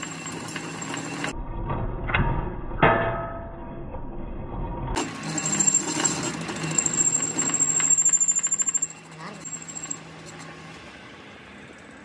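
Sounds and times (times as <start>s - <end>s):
metal lathe running: 0.0s - 1.3s, 5.0s - 12.0s
sharp ringing metallic knocks: 2.8s - 3.6s.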